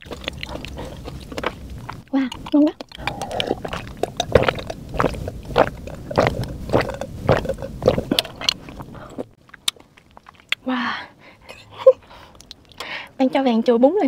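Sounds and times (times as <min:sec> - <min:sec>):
woman gulping a drink: 0:02.8 - 0:09.3.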